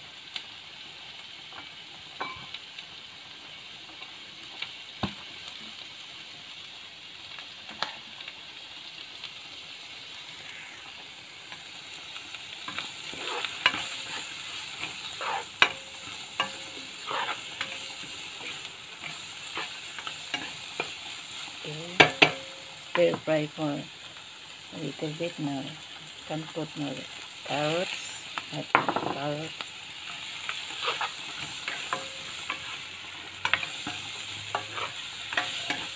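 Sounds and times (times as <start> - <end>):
onions sizzling in oil: 0.0 - 35.9
spatula scraping pan: 12.6 - 23.2, 30.0 - 35.9.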